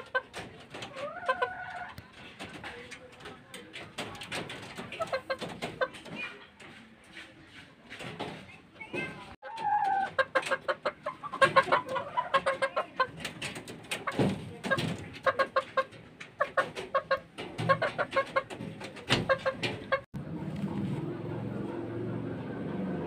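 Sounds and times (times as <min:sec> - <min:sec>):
chicken clucking: 0:00.0 - 0:22.6.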